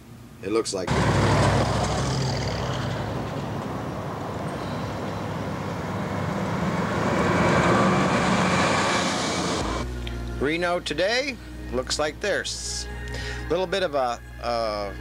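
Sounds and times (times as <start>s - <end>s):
coach diesel engine: 0.8s - 10.0s.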